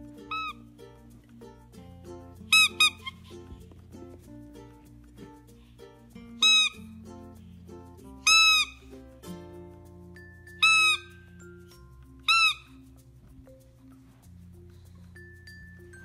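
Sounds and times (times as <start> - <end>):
light background music: 0.0 - 16.0
squeaky dog toy squeaks: 0.1 - 0.8, 2.4 - 3.6, 6.3 - 7.0, 8.1 - 9.2, 10.2 - 13.0.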